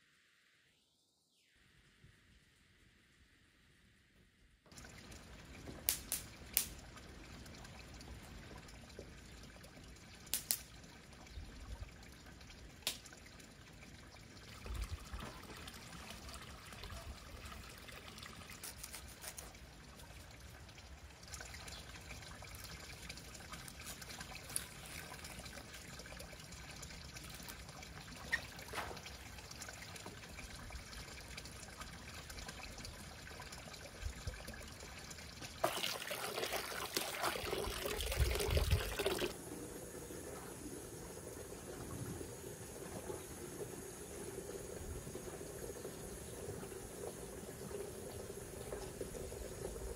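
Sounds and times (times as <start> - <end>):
faint trickling water: 4.7 - 49.9
water splashing into bucket: 35.5 - 39.4.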